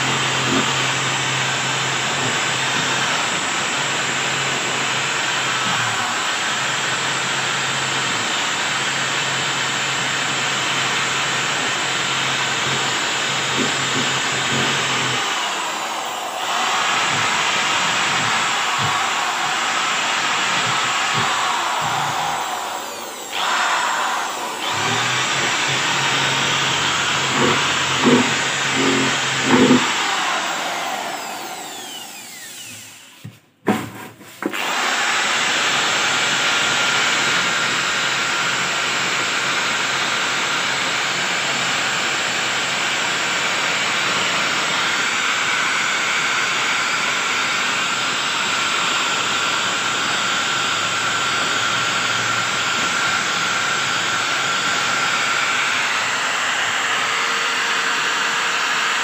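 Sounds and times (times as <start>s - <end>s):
drill wire brush grinding metal: 10.6s - 33.3s.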